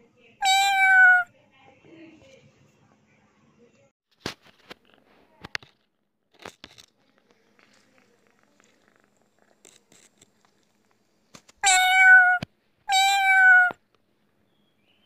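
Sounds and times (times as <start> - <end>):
cat meowing: 0.4 - 1.3, 11.6 - 13.8.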